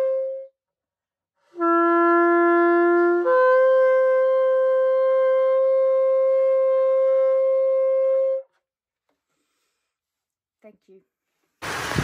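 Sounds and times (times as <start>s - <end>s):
shofar horn blast: 1.5s - 8.5s.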